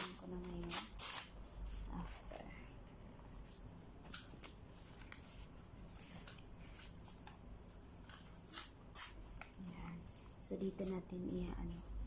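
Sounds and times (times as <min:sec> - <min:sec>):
paper rustling and crinkling: 0:03.3 - 0:11.0.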